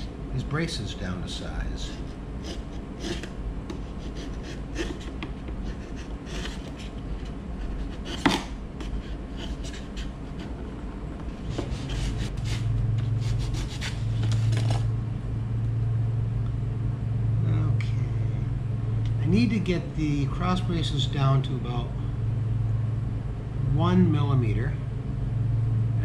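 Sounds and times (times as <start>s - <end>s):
low steady hum: 0.0s - 26.0s
chisel scraping wood: 1.8s - 10.6s, 11.3s - 14.5s.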